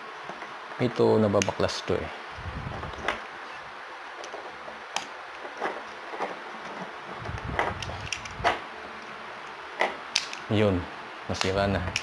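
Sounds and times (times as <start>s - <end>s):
sharp clicks: 10.1s - 10.5s.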